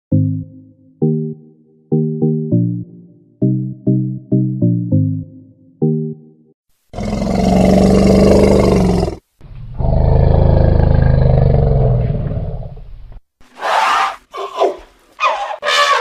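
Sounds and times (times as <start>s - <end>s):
elephant roaring: 7.0s - 9.2s, 9.8s - 12.8s.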